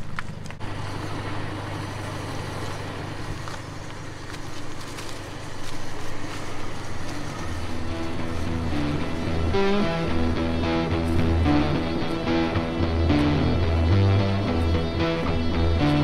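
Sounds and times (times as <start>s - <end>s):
engine idling: 0.0s - 16.0s
footsteps scuffing on dirt: 3.3s - 9.4s
rope dragged over dirt: 4.2s - 8.9s.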